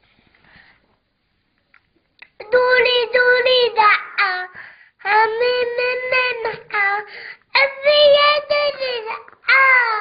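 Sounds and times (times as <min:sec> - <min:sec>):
girl singing unaccompanied: 0:02.3 - 0:10.0.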